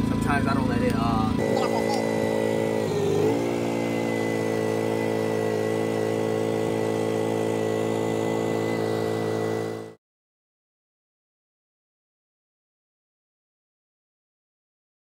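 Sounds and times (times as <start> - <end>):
generator engine running: 0.0 - 10.0.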